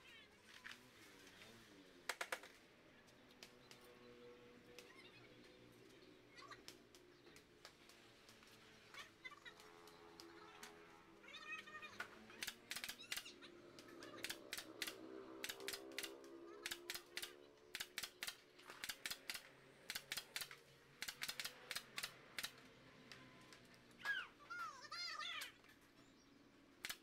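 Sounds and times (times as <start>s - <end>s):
sharp taps and clicks on bamboo slats: 2.1s - 4.0s, 6.6s - 8.6s, 12.0s - 23.7s.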